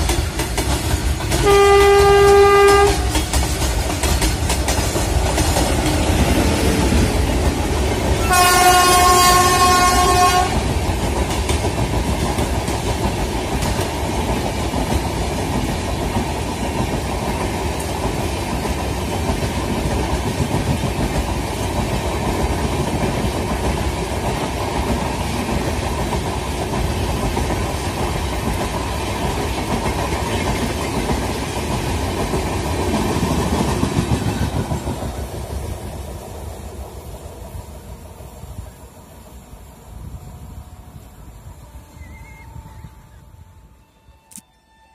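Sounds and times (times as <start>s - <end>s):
train wheels rumbling on rails: 0.0s - 44.9s
train horn: 1.4s - 3.2s, 8.2s - 10.7s, 41.6s - 44.9s.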